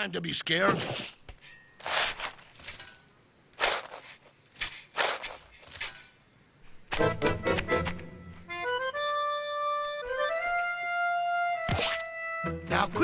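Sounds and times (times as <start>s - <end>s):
cartoon shovel scraping snow: 1.8s - 3.0s, 3.6s - 6.2s.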